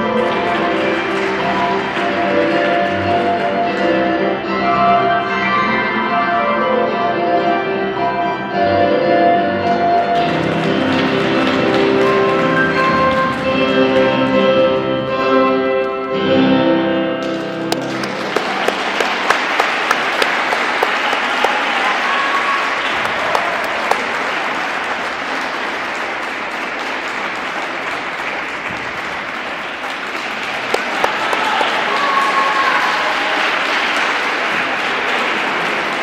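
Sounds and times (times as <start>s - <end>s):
audience applauding: 0.0s - 3.7s, 10.2s - 14.5s, 17.3s - 36.0s
sharp claps close by: 17.2s - 21.9s, 22.8s - 32.3s.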